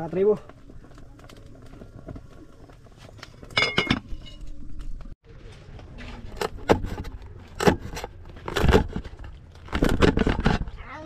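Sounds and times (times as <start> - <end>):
metal cookware clinking: 3.4 - 4.6.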